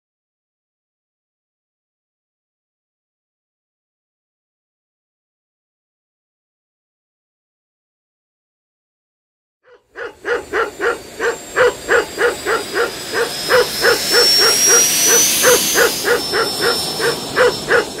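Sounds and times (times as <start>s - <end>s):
short pitched calls: 9.9s - 18.0s
thin high rising tone: 10.1s - 18.0s.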